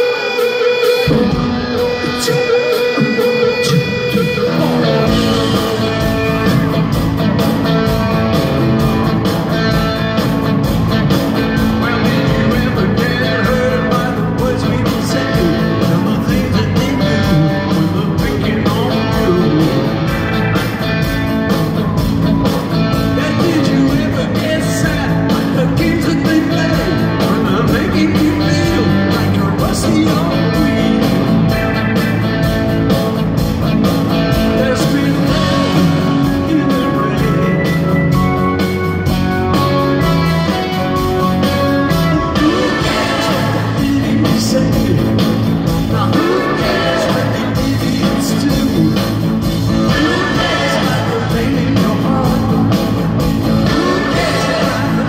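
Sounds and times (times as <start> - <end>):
male lead vocal: 0.0 - 6.7, 11.3 - 20.8, 23.0 - 32.2, 34.2 - 38.2, 41.6 - 55.0
drums: 0.0 - 55.0
electric bass: 0.0 - 55.0
electric guitars: 0.0 - 55.0
keyboards: 0.0 - 55.0.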